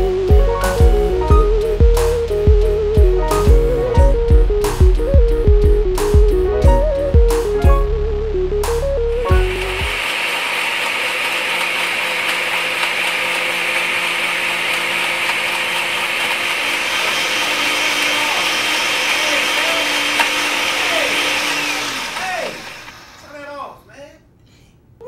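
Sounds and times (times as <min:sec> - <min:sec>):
blender running: 0:09.3 - 0:23.5.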